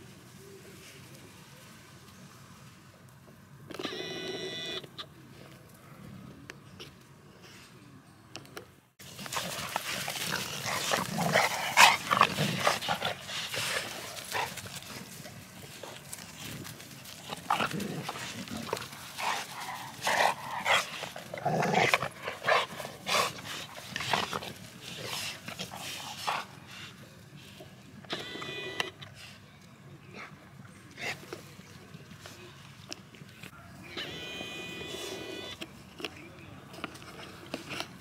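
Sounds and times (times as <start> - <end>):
dogs scuffling: 9.0 - 26.6
dogs growling and yipping: 9.1 - 15.2, 15.8 - 26.5.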